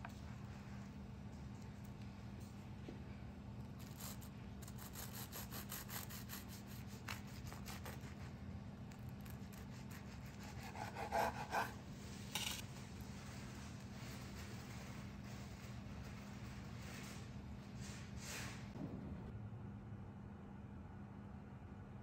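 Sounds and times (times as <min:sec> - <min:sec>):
bread knife sawing crisp crust: 0:03.8 - 0:08.4, 0:09.1 - 0:11.8.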